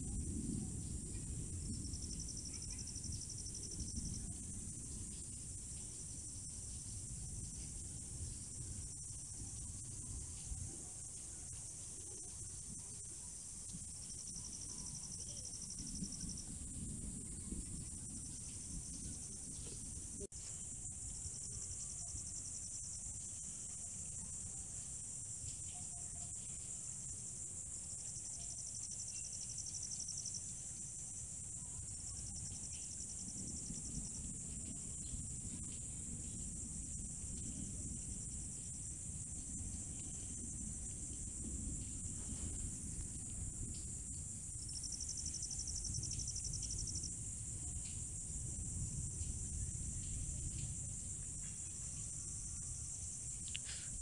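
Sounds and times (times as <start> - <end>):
insect trill: 0.0 - 54.0
crickets shrilling: 0.1 - 54.0.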